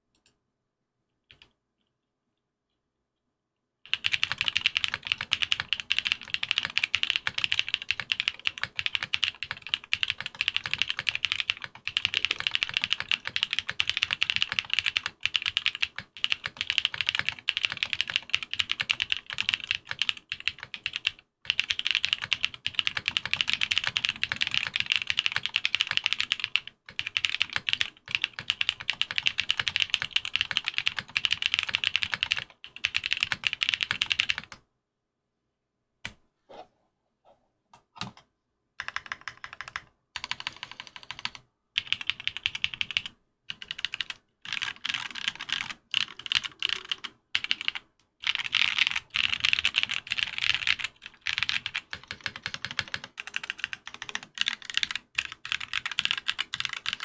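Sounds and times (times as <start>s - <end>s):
clacky mechanical keyboard typing: 3.9s - 34.6s, 38.8s - 57.0s.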